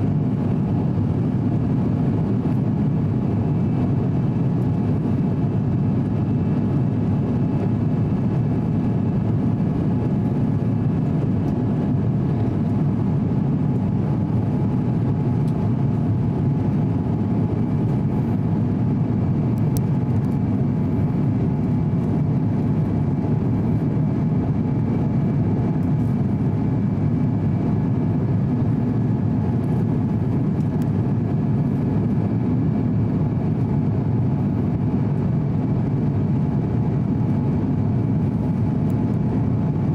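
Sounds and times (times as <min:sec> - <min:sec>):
jet engines roaring in cabin: 0:00.0 - 0:39.9.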